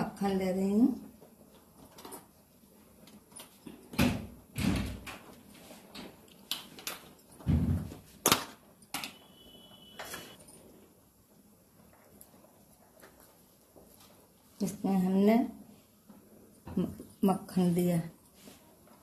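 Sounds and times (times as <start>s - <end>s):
kitchen knocks and clunks: 7.4s - 8.5s.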